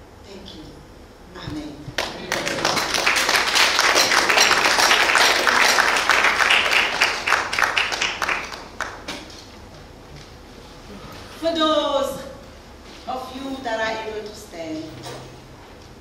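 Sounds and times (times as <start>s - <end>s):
crowd applauding: 2.0s - 9.2s.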